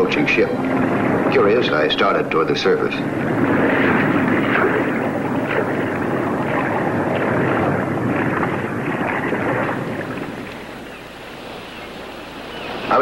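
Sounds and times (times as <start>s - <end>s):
ship engines rumbling underwater: 0.0s - 13.0s.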